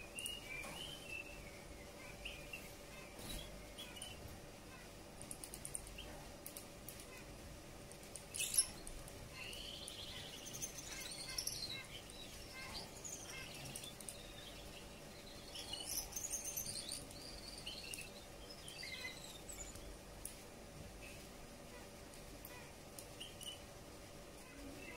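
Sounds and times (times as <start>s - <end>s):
finch singing squeaky chirps: 0.0s - 4.9s, 8.2s - 20.0s, 22.4s - 23.7s.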